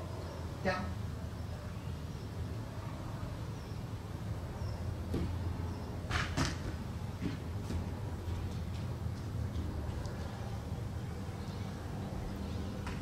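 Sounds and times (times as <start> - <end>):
sharp knocks and thuds: 5.1 - 5.4, 6.1 - 9.7.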